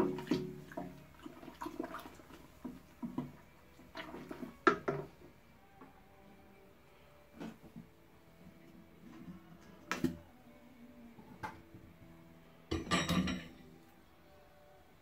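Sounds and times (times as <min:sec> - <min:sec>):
spoon stirring wet malt: 0:00.0 - 0:05.2.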